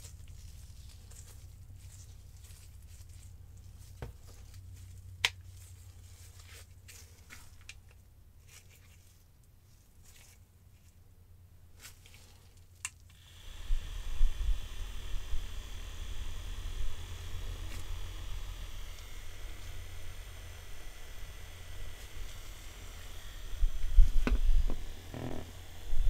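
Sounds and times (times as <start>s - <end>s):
small fan motor whirring: 13.0s - 26.0s.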